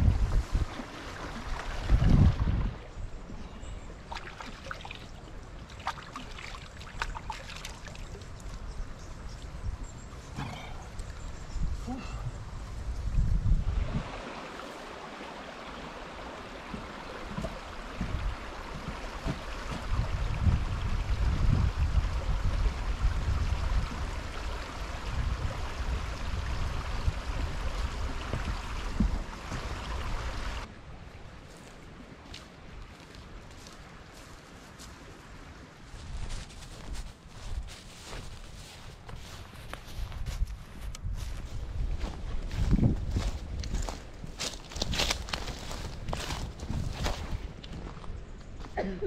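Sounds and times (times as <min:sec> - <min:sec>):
wind buffeting microphone: 0:00.0 - 0:03.5, 0:08.6 - 0:14.2, 0:17.1 - 0:30.7, 0:35.9 - 0:48.7
creek water rushing: 0:00.0 - 0:11.4, 0:12.4 - 0:36.0
hands splashing water: 0:05.7 - 0:08.2.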